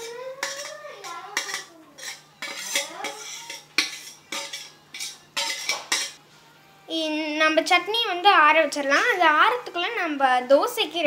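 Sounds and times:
metal spatula scraping a pan: 0.0 - 6.2.

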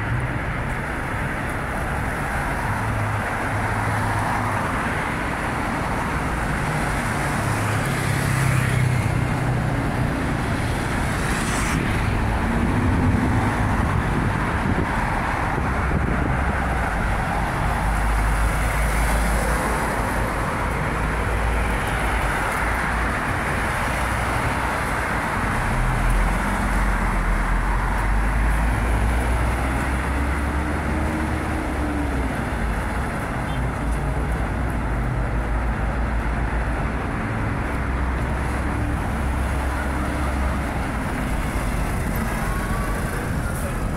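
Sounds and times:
traffic passing on street: 0.0 - 43.9.

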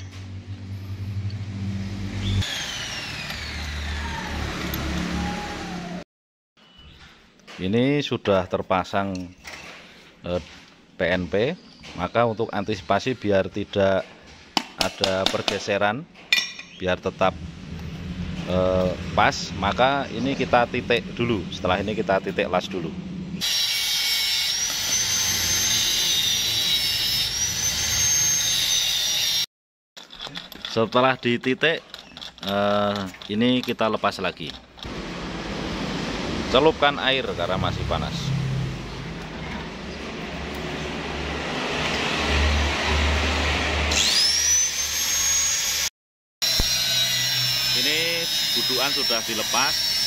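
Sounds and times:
angle grinder high whine: 0.0 - 6.0, 23.3 - 29.5, 41.8 - 50.0.

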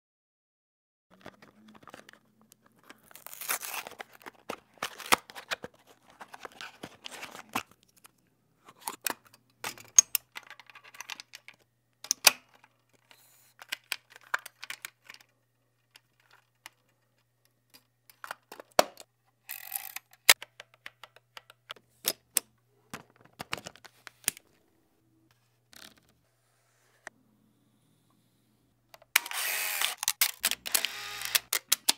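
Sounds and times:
film and camera parts rustling: 1.1 - 18.8, 29.0 - 31.9
camera mechanical clicks: 29.2 - 31.7.

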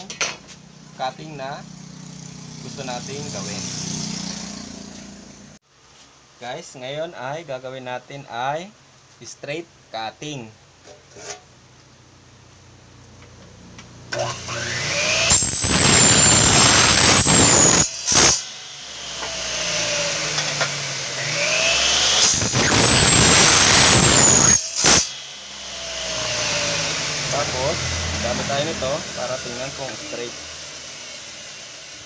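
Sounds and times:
blade cutting aluminum: 14.1 - 32.0
miter saw motor whining: 14.1 - 32.0.

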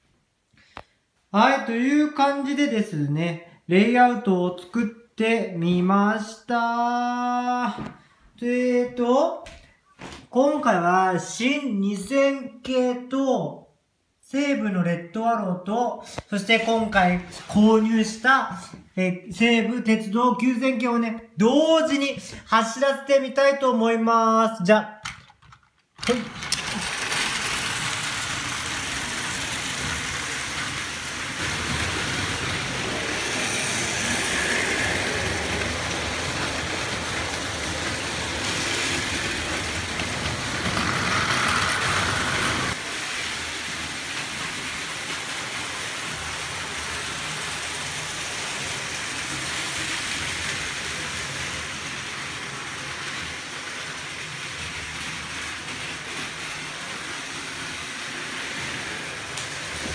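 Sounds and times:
toy train motors whirring: 26.0 - 59.9
wheels rattling over track joints: 26.0 - 59.9.

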